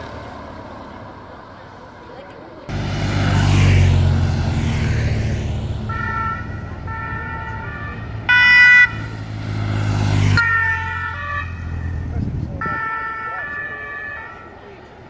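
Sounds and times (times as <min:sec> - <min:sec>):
motorcycle engine passing: 0:02.6 - 0:12.4
two-tone siren: 0:05.9 - 0:09.3, 0:10.2 - 0:14.8.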